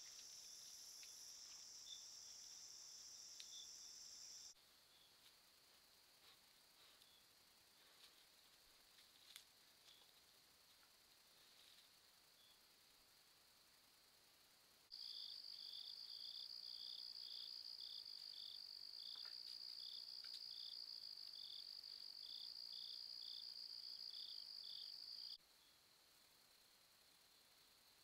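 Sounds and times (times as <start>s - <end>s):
high-pitched insect trill: 0.0s - 5.1s, 14.9s - 25.7s
low pulsing insect chirp: 0.0s - 28.0s.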